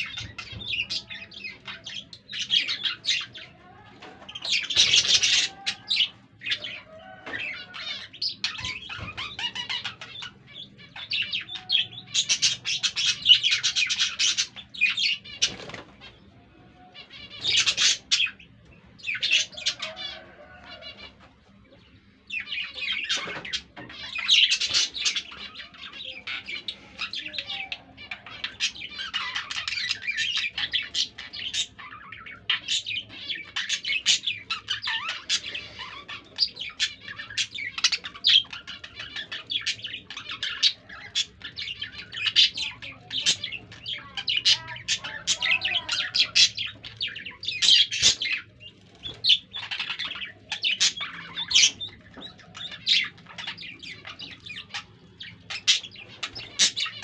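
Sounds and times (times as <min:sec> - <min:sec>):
budgerigars chattering: 0:04.3 - 0:16.2, 0:17.0 - 0:21.3, 0:21.9 - 0:57.0.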